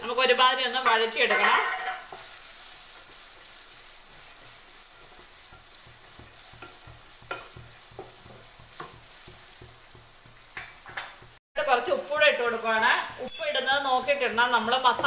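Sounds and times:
onions sizzling in hot oil: 0.0 - 15.0
spatula tapping and scraping pan: 0.8 - 11.4.

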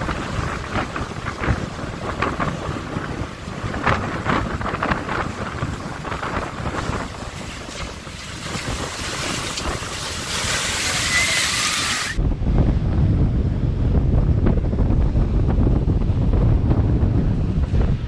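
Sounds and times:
surf breaking on rocks: 0.0 - 12.2
wind buffeting microphone: 0.0 - 18.0.

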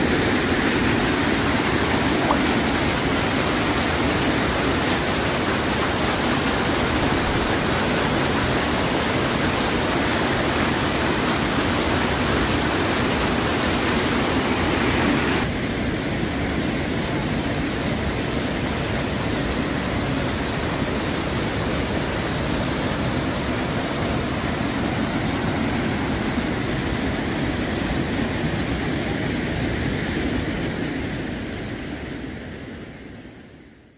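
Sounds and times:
floodwater rushing over rocks: 0.0 - 31.8.

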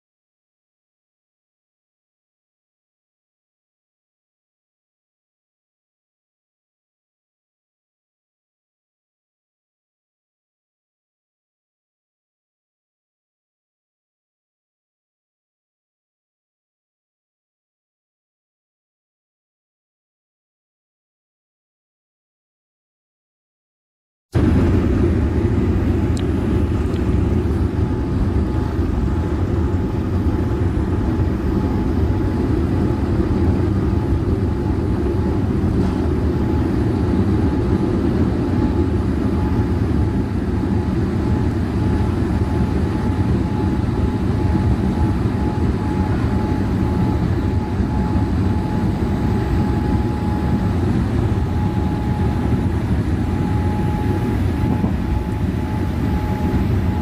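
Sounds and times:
jet engines rumbling and whining: 24.4 - 57.0.

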